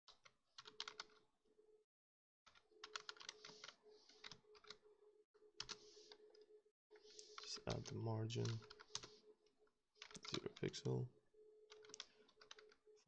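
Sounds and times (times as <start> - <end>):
keyboard typing: 0.1 - 1.2, 2.5 - 4.8, 5.6 - 6.4, 7.0 - 9.2, 10.0 - 11.0, 11.7 - 13.0.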